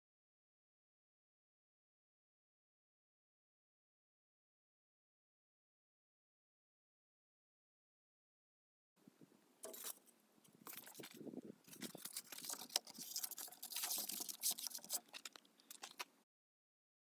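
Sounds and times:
handling noise on microphone: 0:09.6 - 0:16.1.

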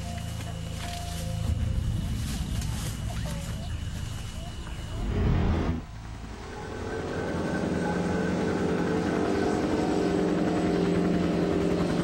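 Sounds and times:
helicopter rotor and engine: 0:05.9 - 0:12.0.

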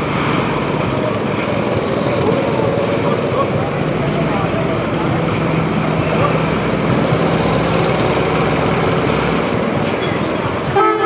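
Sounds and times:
diesel locomotive engine rumbling: 0:00.0 - 0:11.0
train horn: 0:10.7 - 0:11.0.

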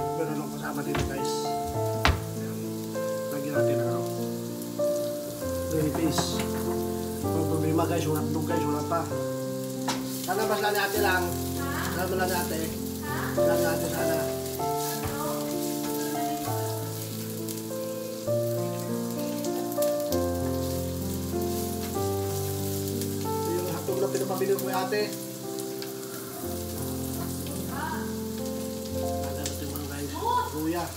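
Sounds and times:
onions sizzling in oil: 0:00.0 - 0:30.9
spatula stirring in pan: 0:14.8 - 0:16.2.

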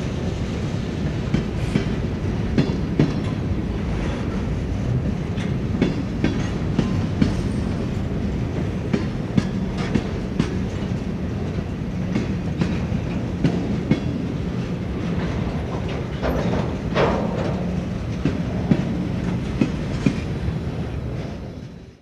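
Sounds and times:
freight train wheels rumbling: 0:00.0 - 0:22.0
wheels clicking over rail joints: 0:01.0 - 0:03.6, 0:04.2 - 0:21.9.

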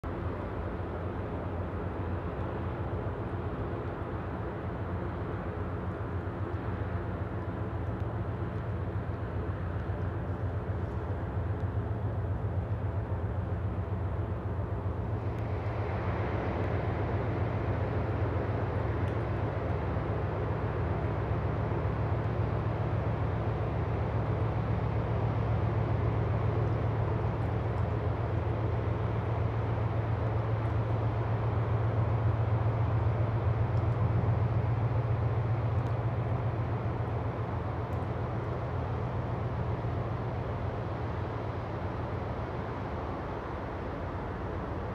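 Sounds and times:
ship engines droning: 0:00.1 - 0:44.9.

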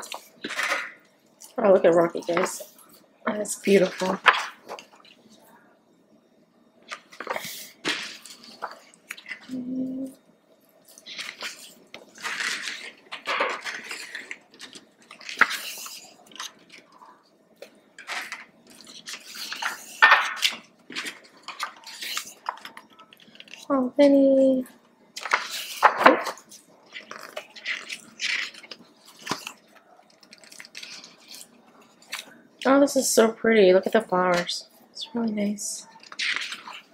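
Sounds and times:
pages turning and rustling: 0:00.0 - 0:01.0, 0:06.9 - 0:09.5, 0:10.9 - 0:16.9, 0:18.0 - 0:23.7, 0:25.2 - 0:32.3, 0:35.8 - 0:36.9.

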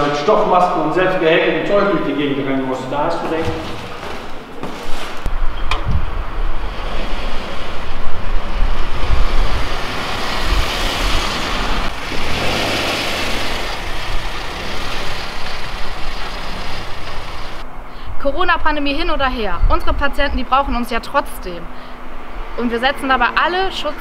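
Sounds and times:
car driving over paving stones: 0:06.6 - 0:17.6.

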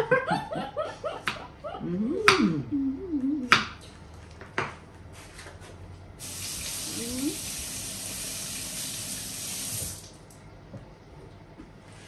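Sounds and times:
women laughing: 0:00.0 - 0:02.8
women humming: 0:01.5 - 0:03.6, 0:06.9 - 0:07.4.

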